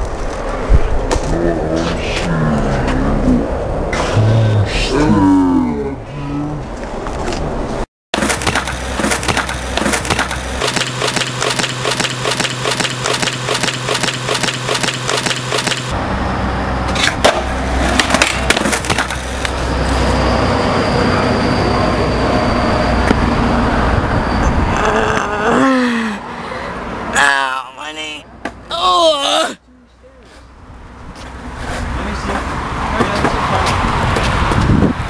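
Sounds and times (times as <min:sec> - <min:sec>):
skateboard rolling on concrete: 0:00.0 - 0:01.3.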